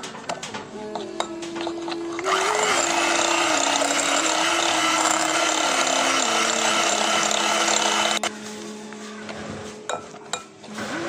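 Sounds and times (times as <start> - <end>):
electric hand mixer whirring: 2.1 - 8.3, 10.7 - 11.0.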